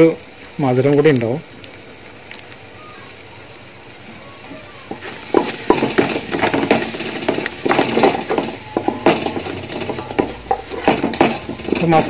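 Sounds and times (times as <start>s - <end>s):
wooden spatula scraping metal pot: 4.9s - 12.0s.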